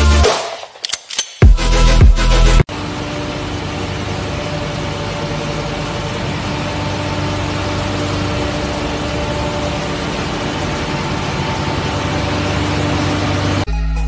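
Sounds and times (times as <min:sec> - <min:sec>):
loud electronic music: 0:00.0 - 0:02.7
ship machinery drone: 0:01.6 - 0:13.7.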